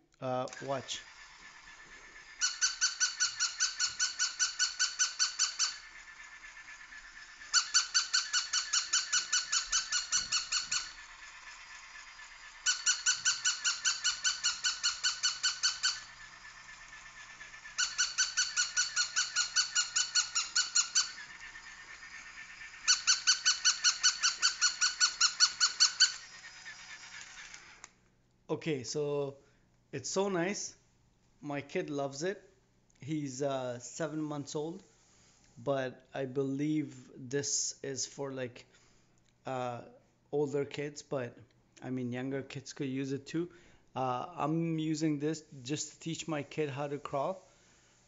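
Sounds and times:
toy dog barking electronically: 2.4s - 5.9s, 7.5s - 11.0s, 12.7s - 16.2s, 17.8s - 21.3s, 22.9s - 26.2s.

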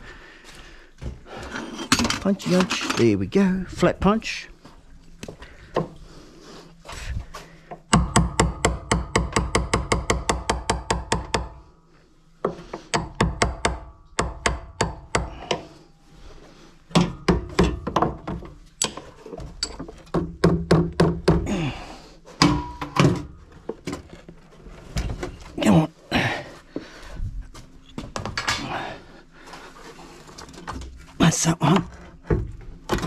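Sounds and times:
hammer tapping metal punch: 7.9s - 11.6s.

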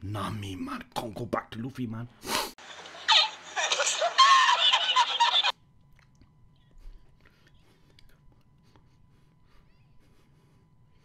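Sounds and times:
high-pitched squeaky laughing: 3.0s - 5.5s.

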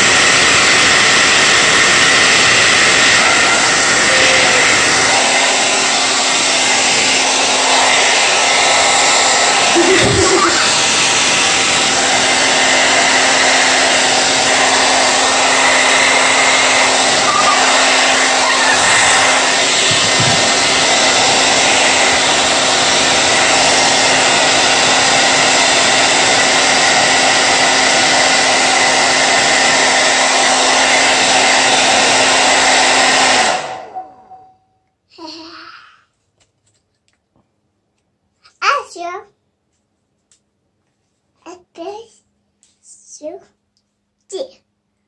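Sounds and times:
hair dryer blowing: 0.0s - 34.6s.

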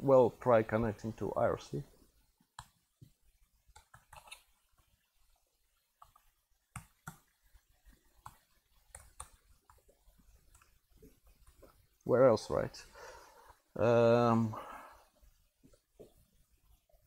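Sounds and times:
typing on laptop keyboard: 3.7s - 4.4s, 6.0s - 10.8s.

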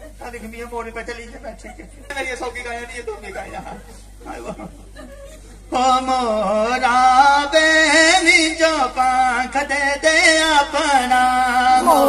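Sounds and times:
man singing into a microphone: 5.7s - 12.0s.

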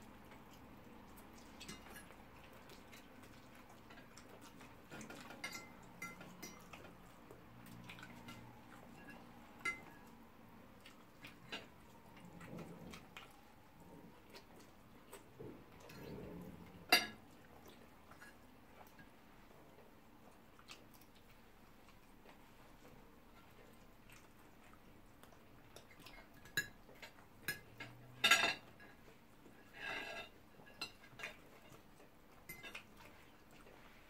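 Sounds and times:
soft chewing: 0.0s - 34.0s
fork clinking on plate: 5.0s - 6.8s, 8.2s - 10.0s.

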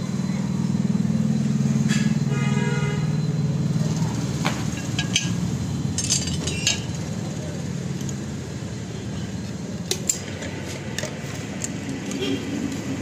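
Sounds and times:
metallic clinks of steel pieces: 5.0s - 6.9s.

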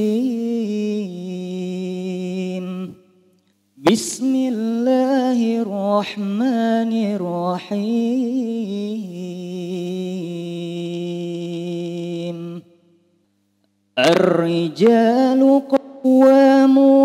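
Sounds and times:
man chanting recitation: 0.0s - 3.0s, 3.8s - 12.7s, 14.0s - 17.0s.

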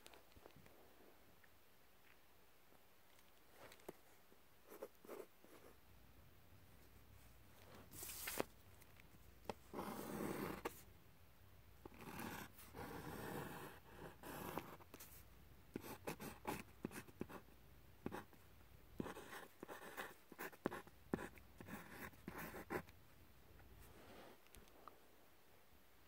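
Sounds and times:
pencil scratching on paper: 9.7s - 10.8s, 11.9s - 15.2s, 15.8s - 17.4s, 19.0s - 22.9s.

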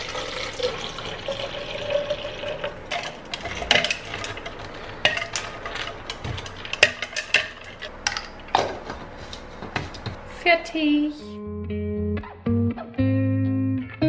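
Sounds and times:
tap water running into cup: 0.0s - 4.6s.

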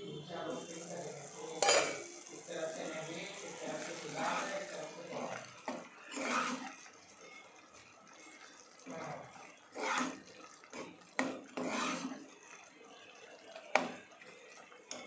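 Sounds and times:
spatula scraping curry in saucepan: 3.3s - 7.4s, 8.2s - 13.1s
utensil clicking on pot: 9.8s - 12.3s.

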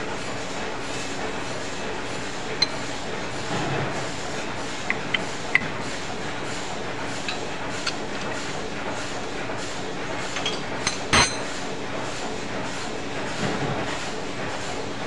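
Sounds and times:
machine hum: 1.7s - 11.4s.

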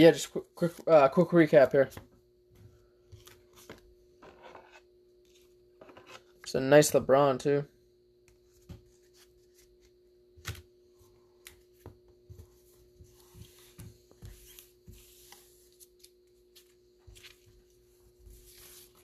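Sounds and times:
cards handled on wooden table: 1.6s - 6.5s, 8.3s - 10.7s, 11.4s - 19.0s.

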